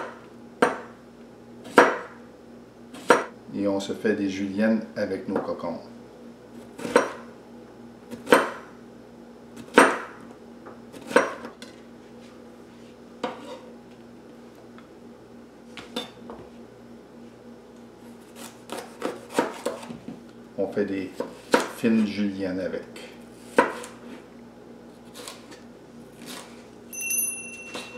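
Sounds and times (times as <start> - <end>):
knife slicing vegetables: 18.2 - 19.9, 23.4 - 24.3, 24.9 - 25.6, 26.2 - 26.6.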